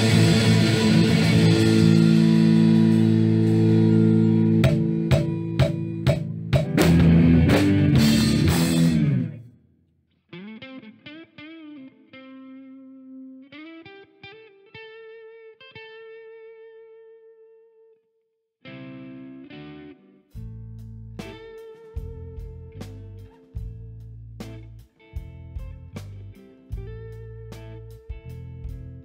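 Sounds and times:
accented drum hits: 0:00.0 - 0:09.3
rock band playing: 0:00.0 - 0:09.4, 0:21.2 - 0:29.0
melodic instrumental with sliding notes: 0:00.0 - 0:09.5.

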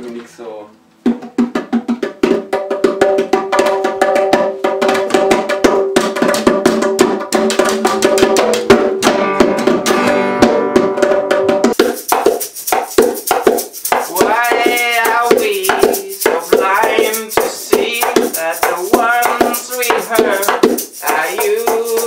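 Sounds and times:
fast hand drumming: 0:01.0 - 0:22.0
acoustic guitar strumming: 0:07.2 - 0:11.8.

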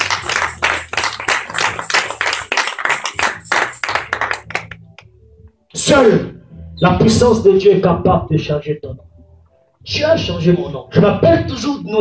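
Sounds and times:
congregation applauding: 0:00.0 - 0:05.1.

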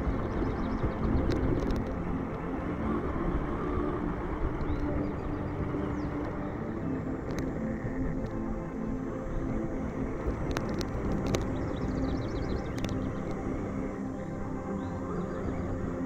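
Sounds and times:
steady rumble: 0:00.0 - 0:16.0
sharp clicks: 0:00.2 - 0:02.0, 0:10.2 - 0:13.5.

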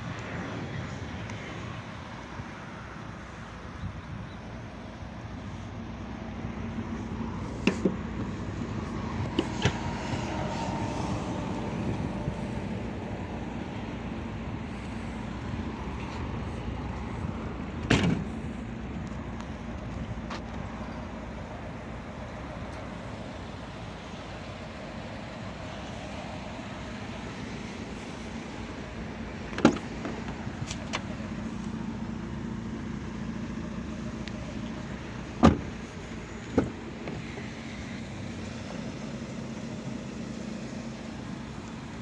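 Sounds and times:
tailgate thump shutting: 0:17.8 - 0:18.3, 0:29.5 - 0:31.0, 0:35.4 - 0:35.8.

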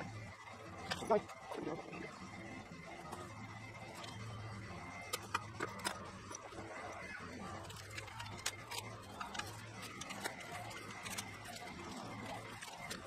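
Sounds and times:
packing paper clicks and rustles: 0:07.6 - 0:13.0.

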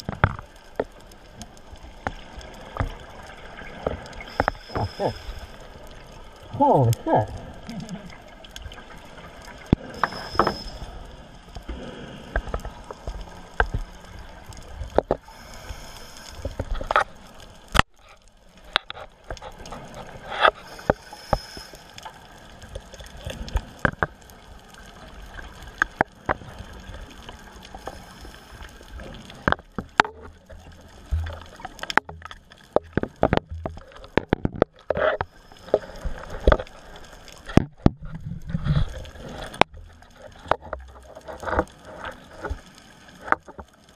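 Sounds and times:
underwater clicks and knocks: 0:00.0 - 0:05.0, 0:09.6 - 0:10.8, 0:14.8 - 0:15.2, 0:22.7 - 0:24.2, 0:25.7 - 0:26.5, 0:29.3 - 0:36.8, 0:37.4 - 0:43.7
low rush of water: 0:01.6 - 0:17.8.

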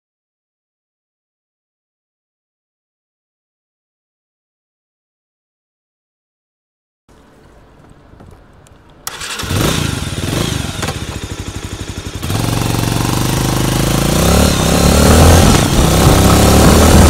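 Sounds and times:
motorcycle engine revving: 0:09.1 - 0:17.0.

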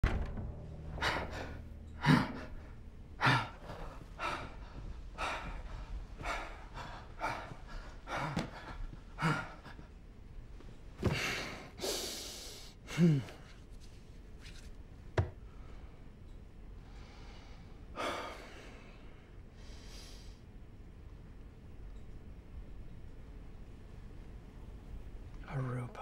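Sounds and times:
man breathing heavily: 0:00.8 - 0:10.0, 0:11.0 - 0:13.5, 0:16.8 - 0:20.4.

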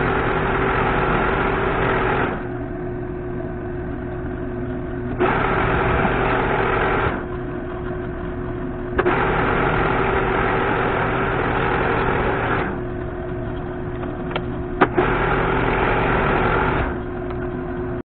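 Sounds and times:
lathe cutting noise: 0:00.0 - 0:02.6, 0:05.1 - 0:08.1, 0:09.0 - 0:17.1
metal lathe humming: 0:00.0 - 0:18.0.

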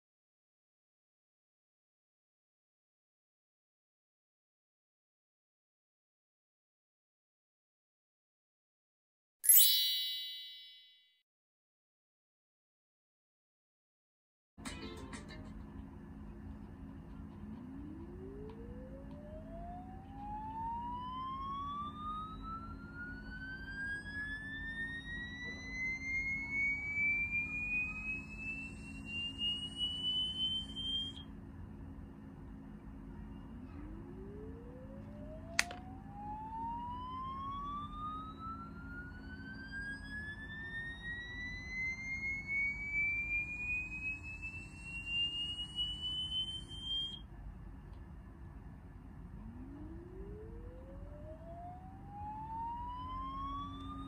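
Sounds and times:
rising electronic test tone: 0:09.5 - 0:10.9, 0:17.7 - 0:31.2, 0:33.4 - 0:47.2, 0:49.4 - 0:54.0
sharp click: 0:35.5 - 0:35.8.

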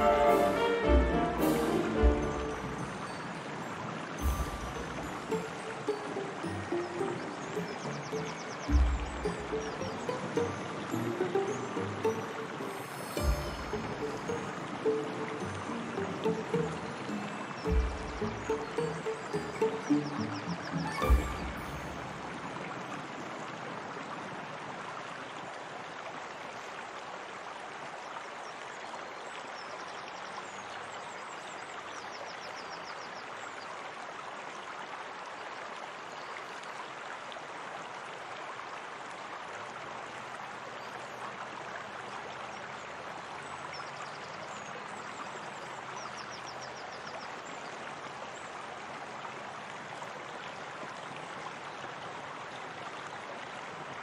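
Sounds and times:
flowing water rushing: 0:00.0 - 0:54.0
faint high chirping trills: 0:15.9 - 0:22.2.

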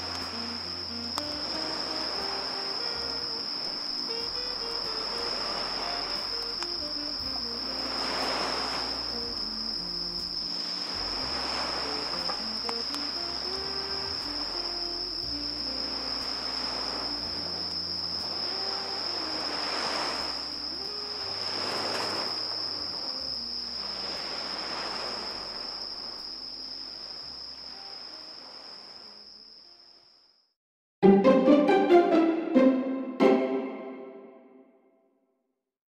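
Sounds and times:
slow low background music: 0:00.0 - 0:24.6, 0:31.0 - 0:34.4
insect trilling: 0:00.0 - 0:30.3.

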